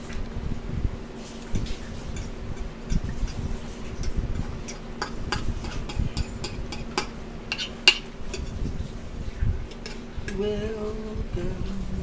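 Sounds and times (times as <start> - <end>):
fork clinking and scraping a bowl: 1.6 - 8.7, 9.7 - 10.4.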